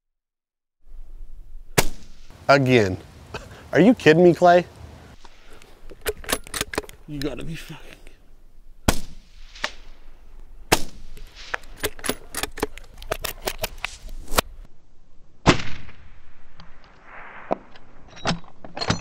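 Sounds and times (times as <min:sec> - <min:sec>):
gunshot echo: 0:01.8 - 0:02.3, 0:08.8 - 0:10.1, 0:10.7 - 0:11.6, 0:15.4 - 0:16.4
sharp clicks and knocks: 0:05.8 - 0:07.3, 0:10.7 - 0:14.5
rifle shots: 0:08.8 - 0:10.0, 0:10.7 - 0:12.4.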